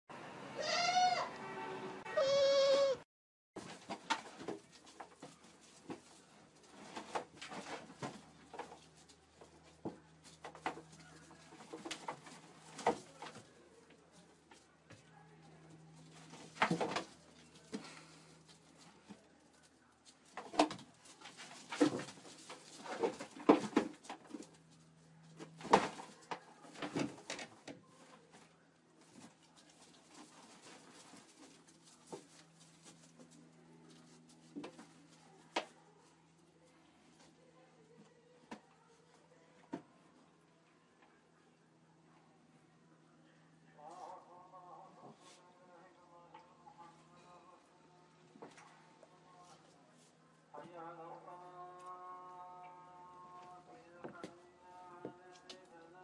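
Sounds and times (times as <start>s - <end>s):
goat bleating: 0.6s - 1.4s, 2.1s - 3.0s
animals moving in a pen: 3.6s - 41.8s, 42.4s - 56.0s
animals crunching dry bread: 28.4s - 37.4s.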